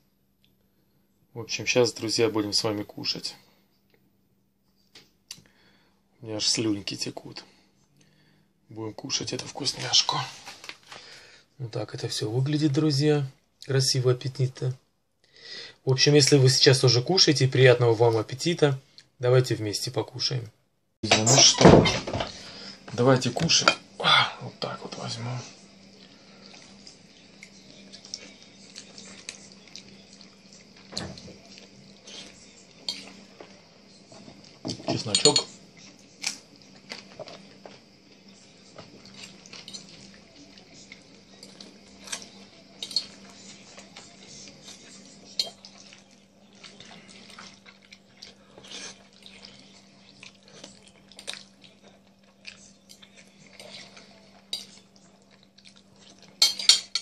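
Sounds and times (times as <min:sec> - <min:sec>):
chewing: 0:25.8 - 0:33.6, 0:35.8 - 0:56.4
fork clinking on a plate: 0:42.1 - 0:43.2, 0:56.4 - 0:57.0.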